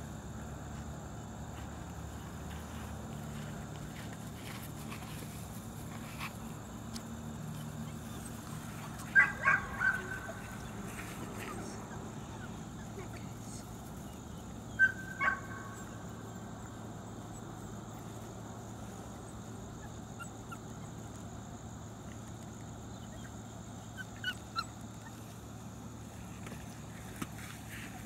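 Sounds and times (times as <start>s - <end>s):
puppies yipping: 7.5s - 13.1s, 14.7s - 16.0s, 19.8s - 21.2s, 23.0s - 25.4s.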